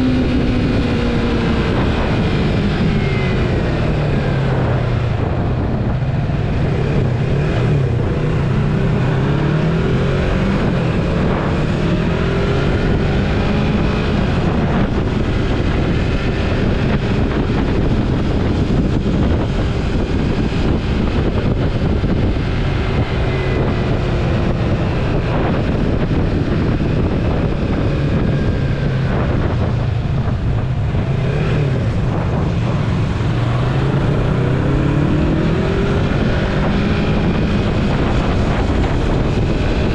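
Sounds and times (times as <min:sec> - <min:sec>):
motorcycle engine revving: 0:00.0 - 0:39.9
wind noise on microphone: 0:00.0 - 0:39.9.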